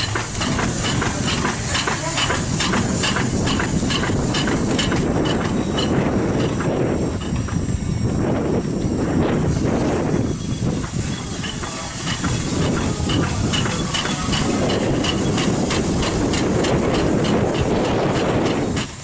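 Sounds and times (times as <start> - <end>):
steam engine exhaust chuffing: 0.0 - 19.0
steam hissing: 0.0 - 19.0.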